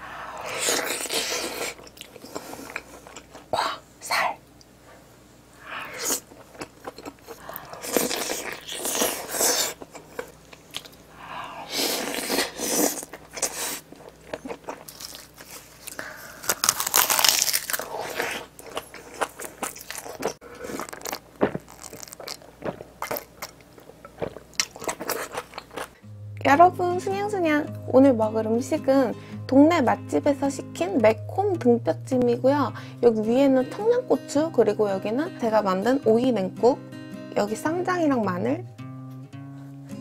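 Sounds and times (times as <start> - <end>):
crunchy bites and chewing: 5.8 - 11.0, 11.8 - 26.0.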